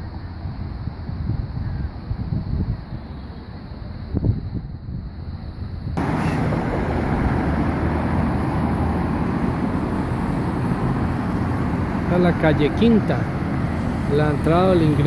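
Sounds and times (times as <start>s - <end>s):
cars and motorcycles passing: 6.0s - 15.0s.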